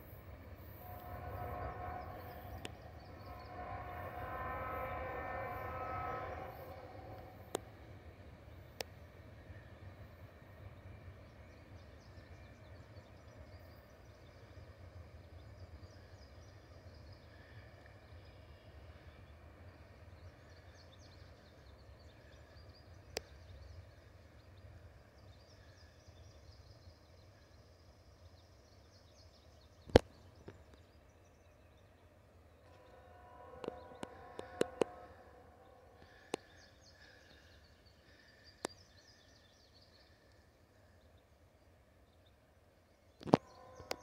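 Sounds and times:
low rumble: 0.0s - 9.2s.

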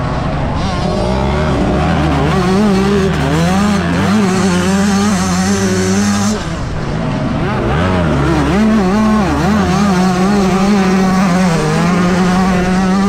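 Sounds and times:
motocross engine revving high: 0.0s - 13.0s.

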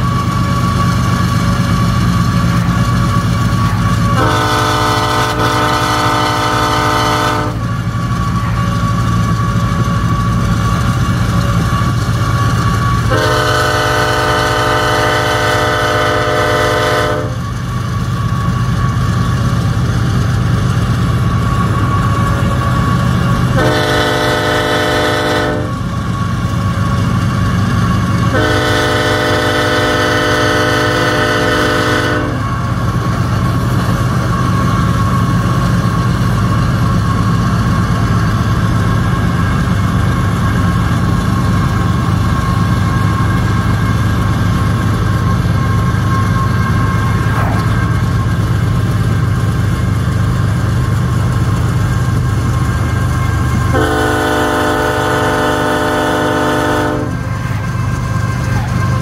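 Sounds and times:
train air horn blasts: 3.4s - 7.9s, 12.9s - 17.6s, 21.8s - 26.3s, 28.0s - 32.9s, 53.0s - 59.0s.

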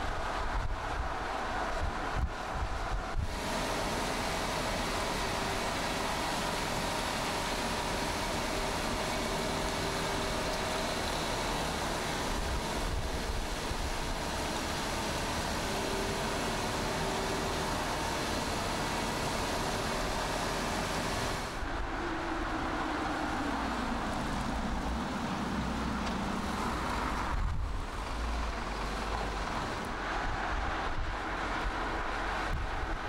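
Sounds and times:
wind noise: 0.0s - 3.5s, 26.4s - 33.0s
car engine and tyre noise: 0.0s - 33.0s.

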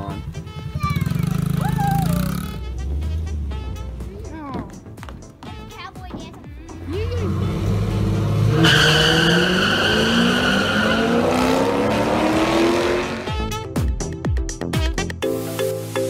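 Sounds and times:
drag racing cars accelerating: 7.1s - 13.4s
tyre squeal: 8.5s - 11.6s.

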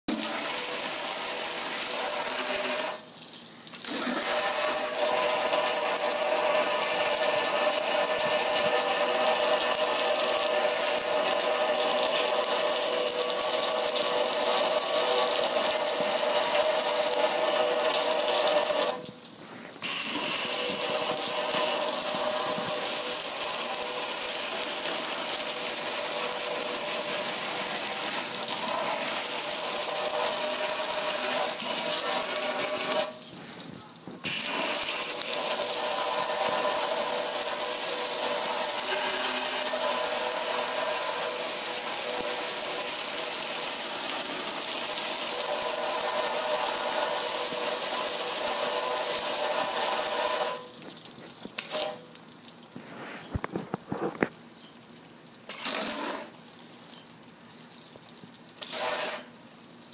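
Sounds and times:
pump hum: 3.8s - 43.0s, 52.8s - 54.4s
pressure washer spraying water: 3.9s - 19.2s, 19.8s - 33.2s, 34.2s - 50.8s, 51.6s - 52.0s, 55.5s - 56.3s, 58.6s - 59.4s.

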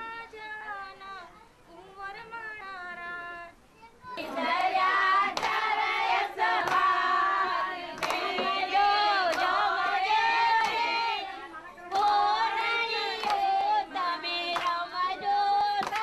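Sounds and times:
women singing: 0.0s - 3.6s, 4.2s - 16.0s
hand claps: 4.2s - 11.0s, 11.9s - 16.0s.

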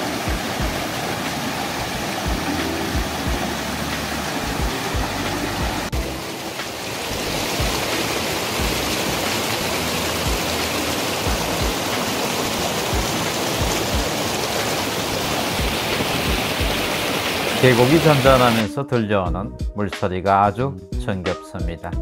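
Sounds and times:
stream rushing over rocks: 0.0s - 18.6s.

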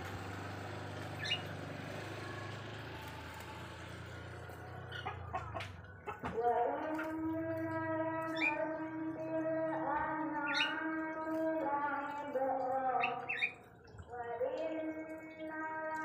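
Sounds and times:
canary chirping: 1.0s - 1.6s, 4.4s - 6.2s, 10.0s - 14.0s.

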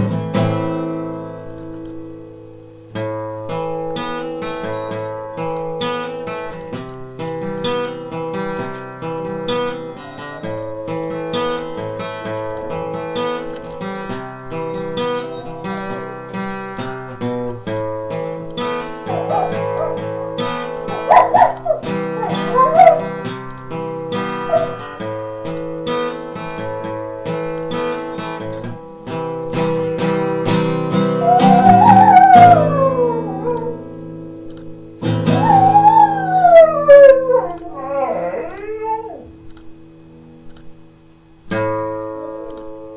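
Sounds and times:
strummed acoustic guitar: 0.0s - 42.9s
dog howling: 15.2s - 16.1s, 19.0s - 20.1s, 20.7s - 23.2s, 24.5s - 24.9s, 31.2s - 33.9s, 35.3s - 39.4s.

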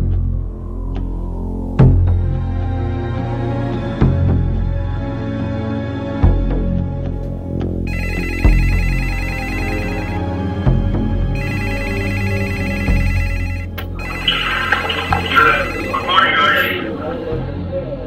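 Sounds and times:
telephone ringing: 7.9s - 10.3s, 11.4s - 16.9s.

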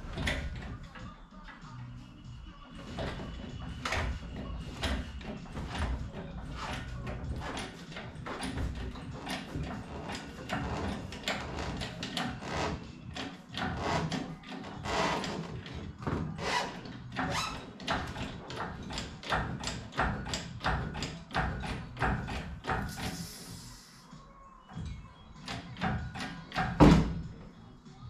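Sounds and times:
hydraulic hoist pump clicks and knocks: 0.0s - 1.8s, 2.7s - 23.2s, 25.4s - 27.4s
brief hiss: 23.0s - 24.1s.

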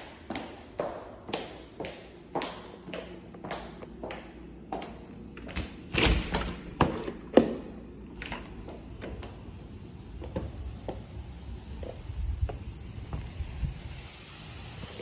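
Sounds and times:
door lock clicks and knocks: 5.4s - 8.6s.

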